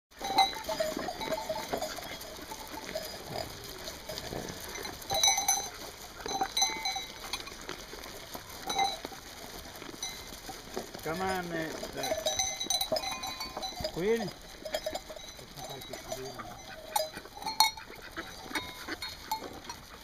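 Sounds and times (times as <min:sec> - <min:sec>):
muzzles knocking in feed: 0:00.1 - 0:20.0
sheep crunching grain: 0:00.1 - 0:20.0.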